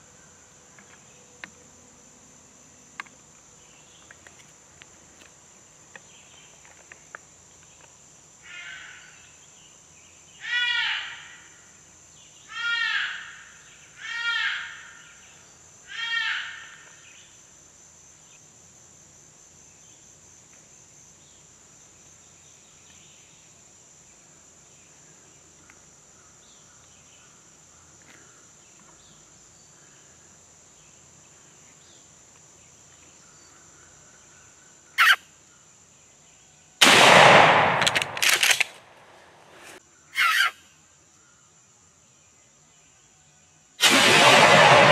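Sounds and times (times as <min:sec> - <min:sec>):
insects droning: 0:00.0 - 0:44.9
fawn distress bleats: 0:40.2 - 0:40.6.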